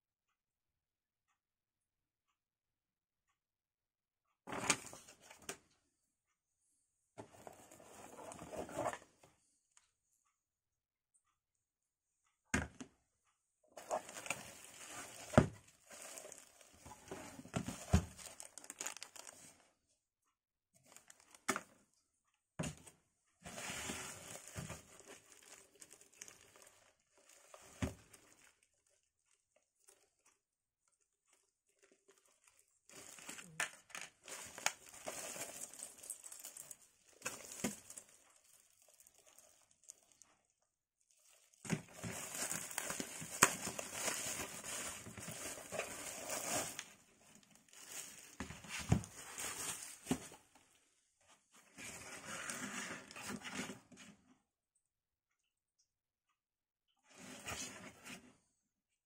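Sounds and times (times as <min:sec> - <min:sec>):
plastic wrap crinkling: 0:13.8 - 0:19.6, 0:23.7 - 0:30.1, 0:31.6 - 0:40.3, 0:41.0 - 0:50.2.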